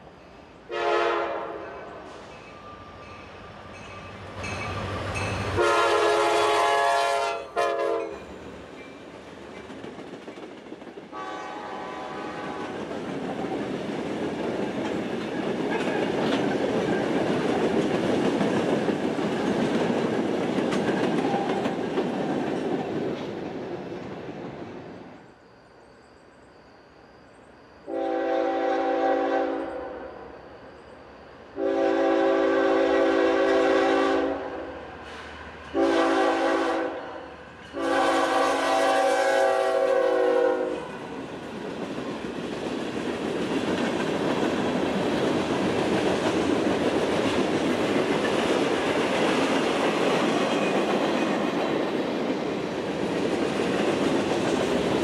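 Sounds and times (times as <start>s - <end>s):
train air horn: 0.7s - 2.4s, 5.6s - 8.3s, 11.1s - 12.8s, 27.9s - 30.4s, 31.6s - 41.0s
distant train horn: 0.7s - 2.8s, 4.5s - 8.3s, 11.1s - 12.8s, 27.8s - 30.4s, 31.6s - 41.2s
train wheels rumbling on rails: 1.4s - 25.4s, 31.6s - 55.0s.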